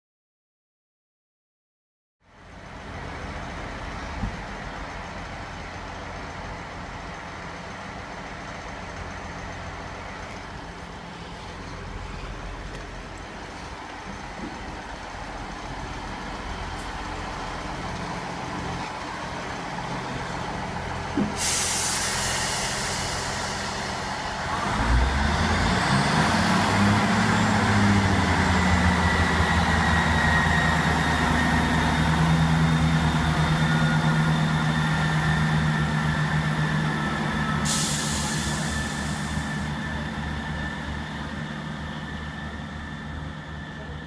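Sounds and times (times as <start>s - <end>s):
train diesel engines running: 2.3s - 44.0s
air hissing: 21.2s - 24.2s, 37.6s - 39.6s.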